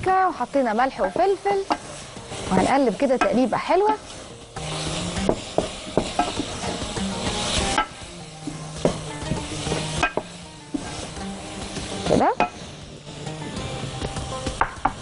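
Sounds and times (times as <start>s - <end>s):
food sizzling in a frying pan: 0.0s - 15.0s
wooden spoon scraping a pan: 0.4s - 13.3s
spoon knocking against pan: 5.2s - 6.6s, 10.0s - 10.4s.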